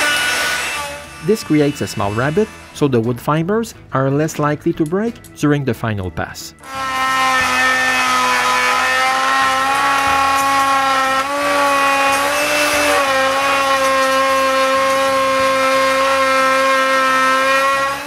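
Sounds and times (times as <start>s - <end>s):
hiss of router cutting wood: 0.0s - 2.6s
router motor whining: 0.0s - 2.8s, 6.6s - 18.0s.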